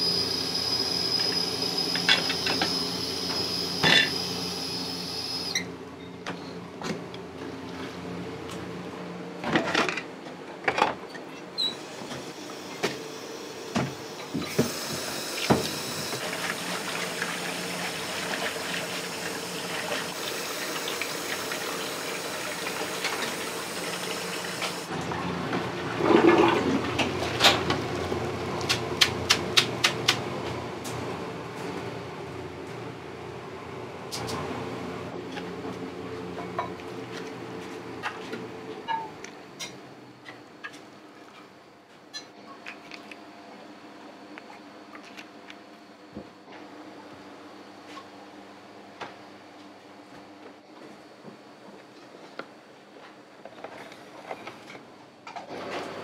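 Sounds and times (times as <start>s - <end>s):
steady machine hum: 0.0s - 6.0s.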